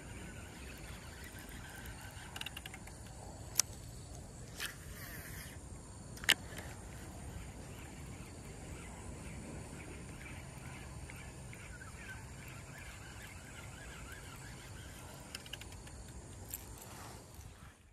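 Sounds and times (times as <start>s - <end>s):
faint bird chirps: 7.3s - 16.0s.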